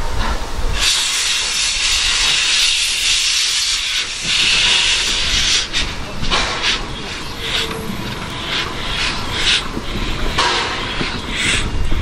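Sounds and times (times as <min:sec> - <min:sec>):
locomotive venting steam: 0:00.0 - 0:12.0.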